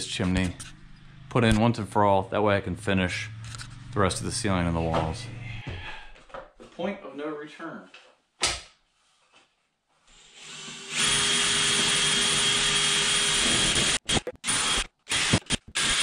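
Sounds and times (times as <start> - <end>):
cordless drill boring into wood: 10.2 - 16.0.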